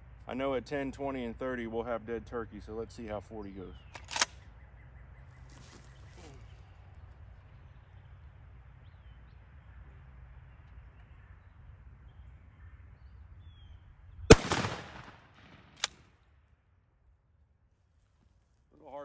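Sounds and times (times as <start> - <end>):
shotgun shot with echo: 14.3 - 16.0.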